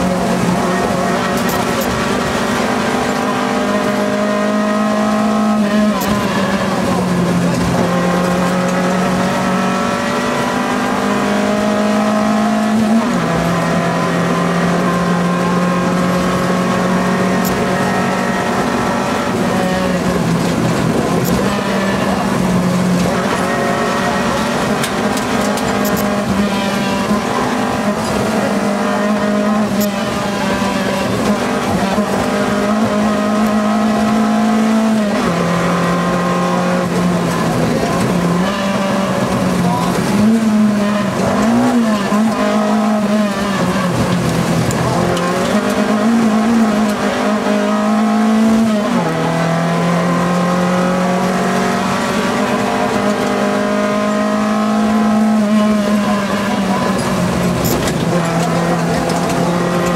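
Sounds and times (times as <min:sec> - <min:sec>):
rally car engine accelerating: 0:00.0 - 0:59.9.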